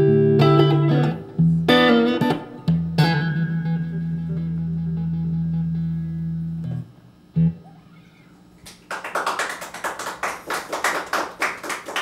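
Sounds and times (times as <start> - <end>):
electric guitar note ringing: 0.0 - 8.5
audience clapping: 8.6 - 12.0.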